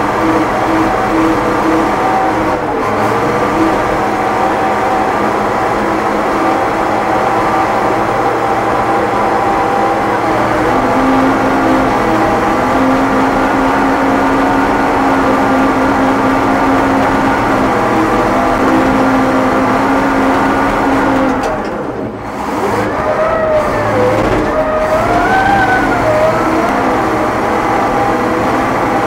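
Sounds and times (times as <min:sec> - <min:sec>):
diesel dozer engine running: 0:00.0 - 0:29.0
higher tones rising and falling: 0:22.7 - 0:28.5.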